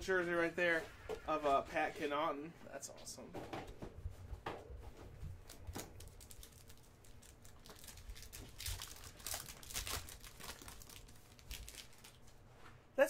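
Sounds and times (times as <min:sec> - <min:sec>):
foil wrapper tearing and crinkling: 0:05.4 - 0:12.4.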